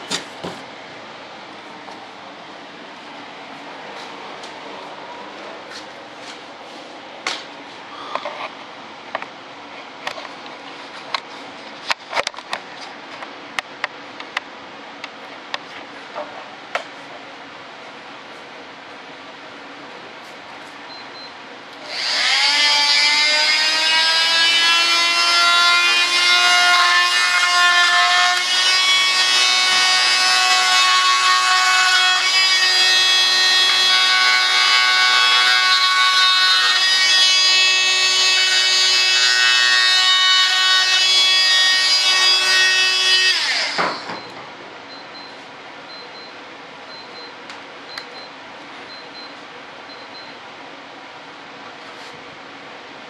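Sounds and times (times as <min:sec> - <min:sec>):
rotary cutting tool whining: 0:21.8 - 0:44.2.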